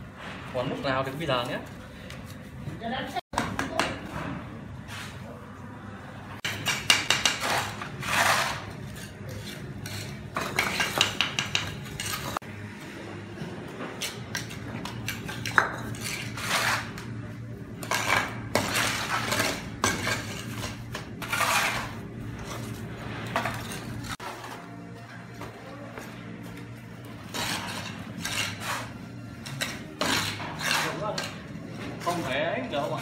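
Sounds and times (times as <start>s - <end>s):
trowel scraping and tapping mortar: 6.4s - 12.4s, 14.0s - 17.1s, 17.8s - 22.8s, 27.3s - 31.4s.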